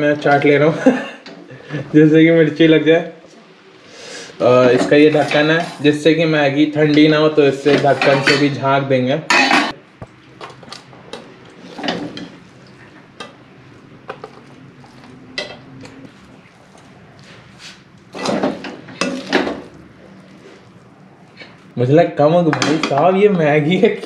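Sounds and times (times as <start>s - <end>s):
metal spoon scraping steel pan: 4.8s - 6.0s, 7.6s - 8.6s.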